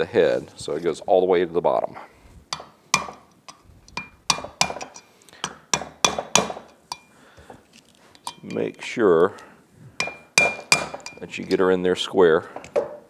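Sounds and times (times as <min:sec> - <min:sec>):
hammer tapping metal: 0:02.5 - 0:07.1, 0:08.3 - 0:08.8, 0:10.0 - 0:11.3.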